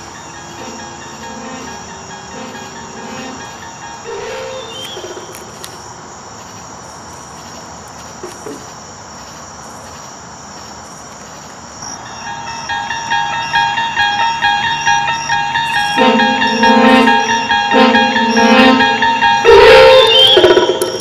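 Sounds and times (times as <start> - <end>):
music: 0.0 - 4.8, 12.1 - 21.0
crickets chirping: 0.0 - 21.0.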